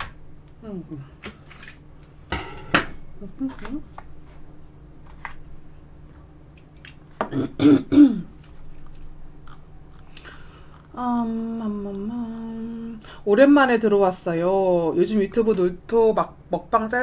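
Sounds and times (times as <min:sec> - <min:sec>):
woman humming: 0:00.6 - 0:01.2, 0:03.1 - 0:03.9, 0:11.0 - 0:13.1
woman clearing throat: 0:07.2 - 0:08.3.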